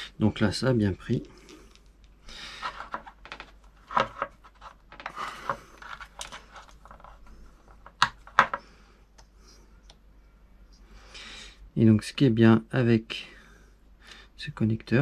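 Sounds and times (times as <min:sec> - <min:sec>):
scratchy scraping: 0:02.4 - 0:07.9.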